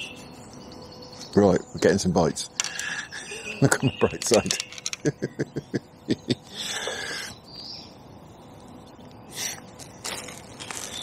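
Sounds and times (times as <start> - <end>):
songbirds calling: 0.0 - 11.0.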